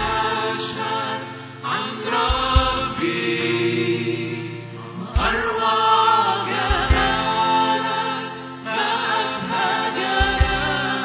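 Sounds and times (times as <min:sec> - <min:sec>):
man singing into a microphone: 0:00.0 - 0:11.0
sustained instrumental chords: 0:00.0 - 0:11.0.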